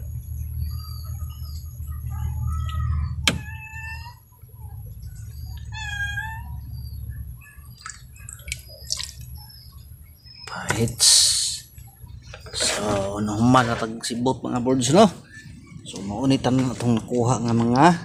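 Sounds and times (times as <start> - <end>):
steady low hum: 0.0 - 18.0
drawn-out animal calls: 2.0 - 8.2.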